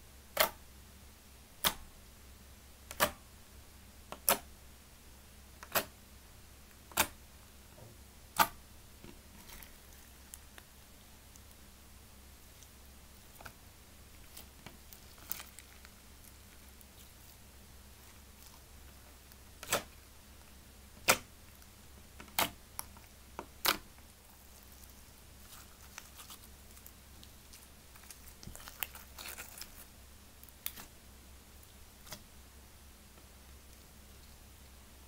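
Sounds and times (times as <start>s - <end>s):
slime crackling: 13.3s - 20.0s, 22.2s - 30.9s.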